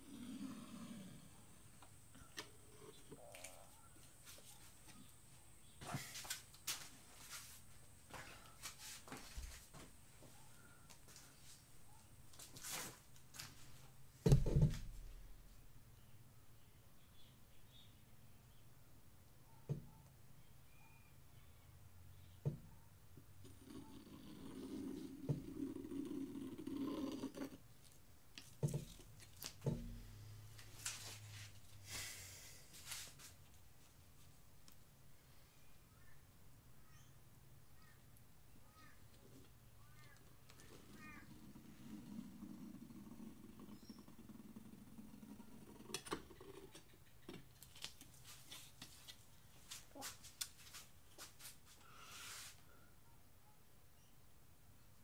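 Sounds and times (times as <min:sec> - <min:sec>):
soft rustles: 0:05.8 - 0:11.7, 0:12.3 - 0:14.0, 0:30.5 - 0:31.8, 0:32.6 - 0:34.4, 0:47.6 - 0:52.6.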